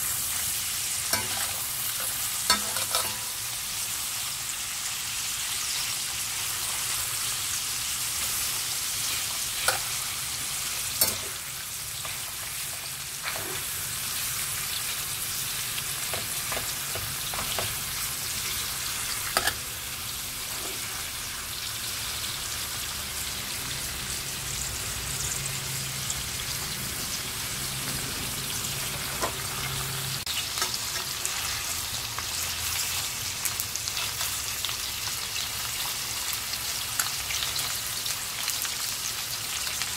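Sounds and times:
meat sizzling in a frying pan: 0.0s - 39.9s.

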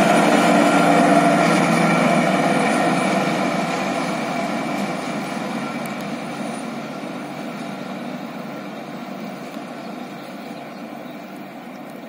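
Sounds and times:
diesel locomotive engine drone: 0.0s - 12.0s.

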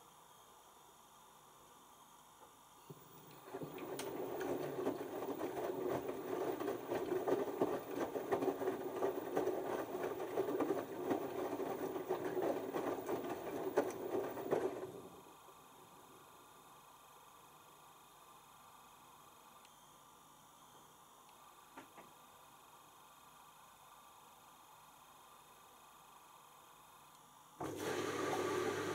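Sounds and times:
wet laundry tumbling in water: 3.3s - 15.2s
washing machine drum turning: 3.4s - 15.1s.

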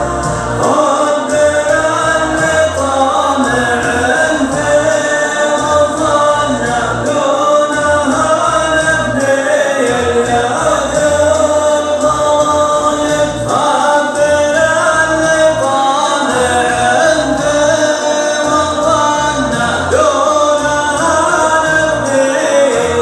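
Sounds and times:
choir singing: 0.0s - 8.2s
low notes: 0.0s - 23.0s.

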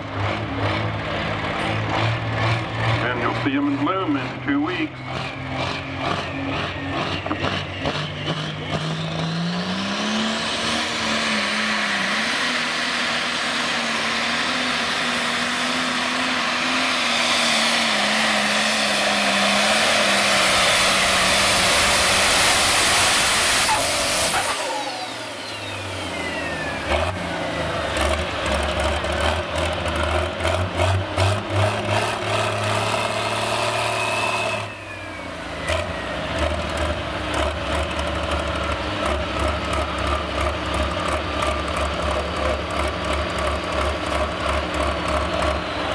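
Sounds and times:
engine throttle blips: 0.0s - 45.9s
tractor engine at full throttle: 0.0s - 45.9s.

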